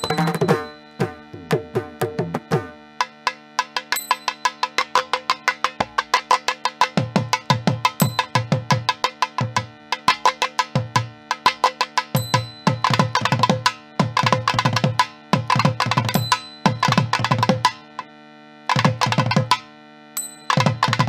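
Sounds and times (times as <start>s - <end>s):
hand drum strokes: 0.0s - 18.1s.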